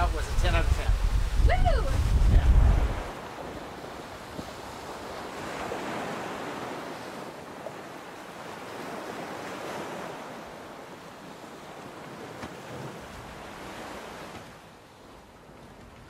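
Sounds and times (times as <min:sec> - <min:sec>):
wind blowing on microphone: 0:00.0 - 0:07.1
waves splashing against hull: 0:00.0 - 0:16.0.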